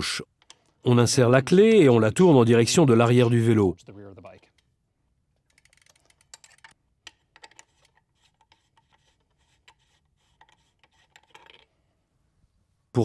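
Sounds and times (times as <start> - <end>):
metal-on-metal rubbing: 5.5 - 11.7.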